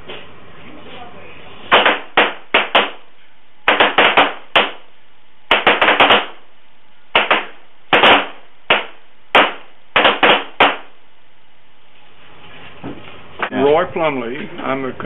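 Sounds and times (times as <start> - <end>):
pistol shots: 1.7 - 3.0, 3.7 - 4.8, 5.5 - 6.4, 7.2 - 10.9.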